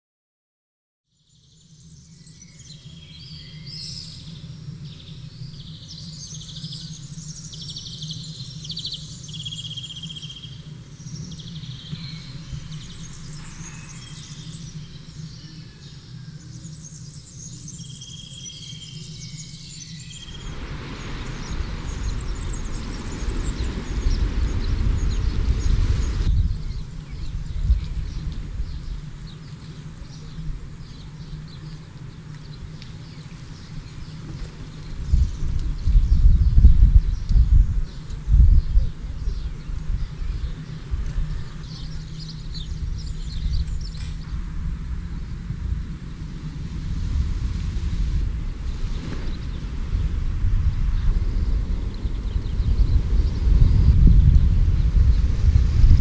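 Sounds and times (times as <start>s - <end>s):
birds chirping and trilling: 1.4s - 46.6s, 48.3s - 56.0s
low steady hum: 2.7s - 56.0s
low rushing noise: 10.7s - 15.7s, 19.9s - 31.4s, 32.0s - 56.0s.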